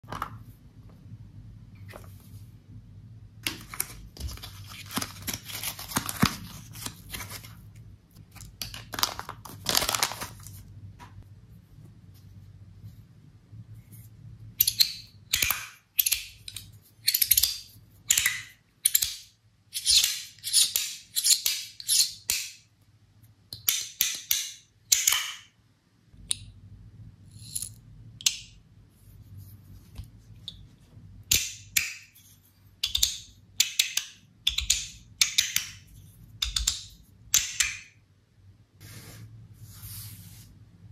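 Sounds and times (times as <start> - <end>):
plastic bag crinkling: 8.7 - 10.7.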